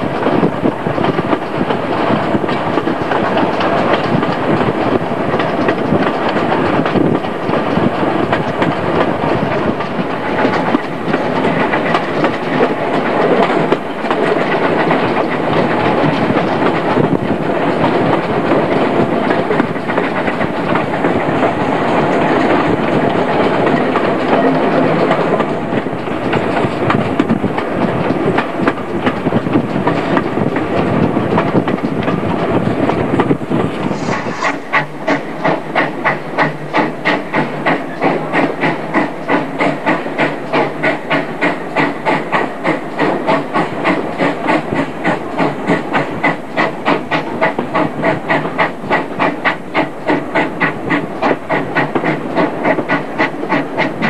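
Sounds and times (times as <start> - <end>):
train wheels on rail: 0.0 - 54.0
rushing air: 32.2 - 37.8
steam locomotive exhaust puffing: 32.4 - 54.0.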